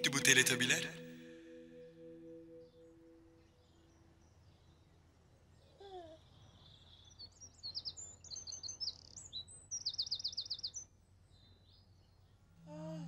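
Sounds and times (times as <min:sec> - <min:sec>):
songbird chirping and trilling: 0:06.4 - 0:12.2.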